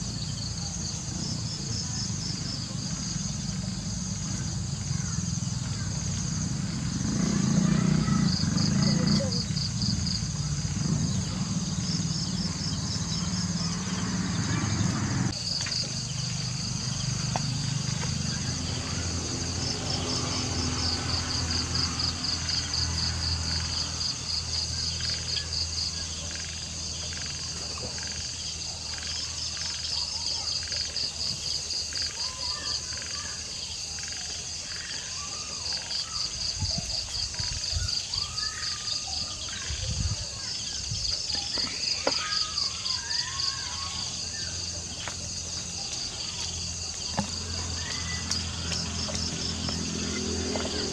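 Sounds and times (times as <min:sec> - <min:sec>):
crickets chirping: 0:00.0 - 0:50.9
night creatures calling: 0:01.7 - 0:50.9.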